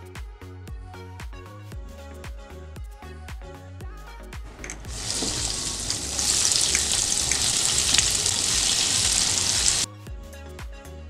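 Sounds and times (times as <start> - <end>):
food sizzling in deep fryer oil: 4.9 - 9.9.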